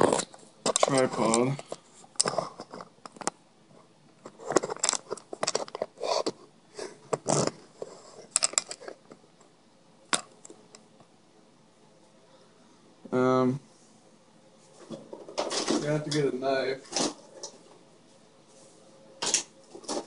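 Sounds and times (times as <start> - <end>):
camera handling rustles and clicks: 4.2 - 6.4, 8.2 - 9.0.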